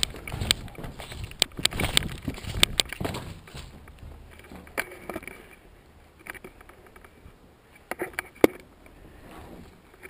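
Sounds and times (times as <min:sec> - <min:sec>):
footsteps on gritty concrete: 0:00.0 - 0:04.8.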